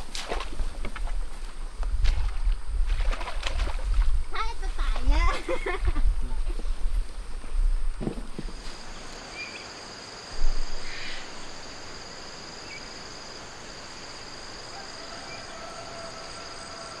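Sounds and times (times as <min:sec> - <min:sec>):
insects trilling: 0:00.0 - 0:17.0
brief thump: 0:08.0 - 0:08.6.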